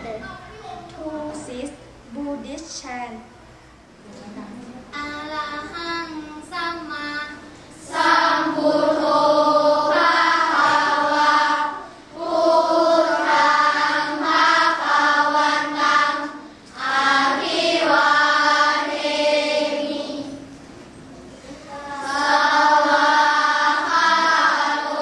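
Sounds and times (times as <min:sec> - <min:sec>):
children chanting in unison: 0:07.8 - 0:20.5, 0:21.7 - 0:25.0.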